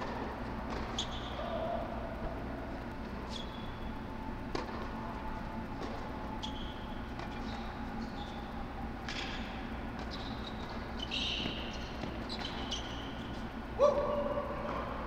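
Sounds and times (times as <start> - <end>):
shoes squeaking on hard court: 0.7 - 1.5, 3.0 - 4.0, 4.6 - 13.6
racquets striking tennis ball: 4.5 - 5.0.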